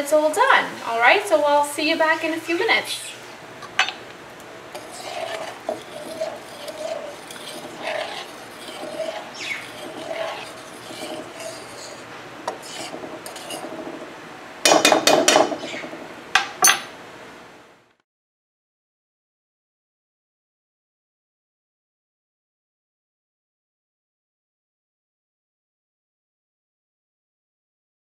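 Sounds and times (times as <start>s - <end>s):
fork scraping and tapping a pan: 4.7s - 14.1s, 14.7s - 15.8s.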